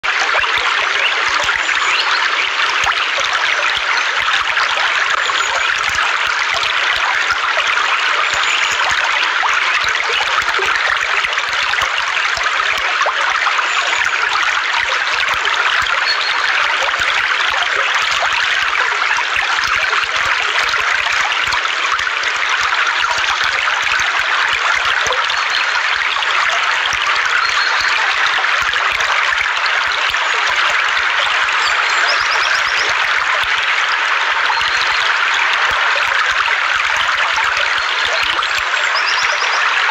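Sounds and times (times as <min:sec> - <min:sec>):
stream flowing over stones: 0:00.0 - 0:39.9.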